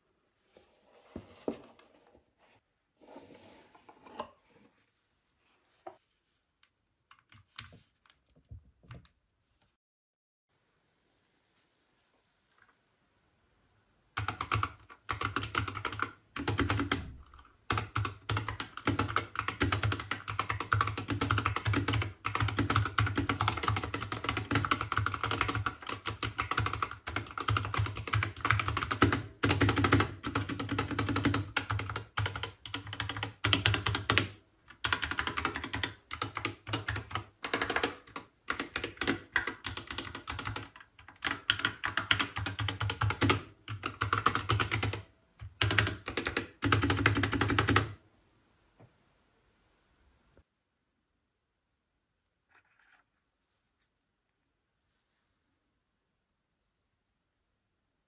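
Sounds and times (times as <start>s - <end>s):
mechanical keyboard typing: 14.2s - 48.0s.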